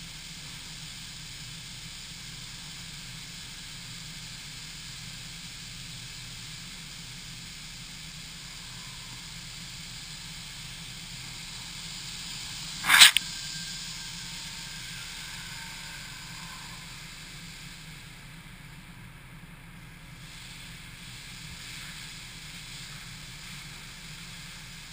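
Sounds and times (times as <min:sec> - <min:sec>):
car wash spray hiss: 0:00.0 - 0:24.9
loud sharp burst: 0:12.8 - 0:13.2.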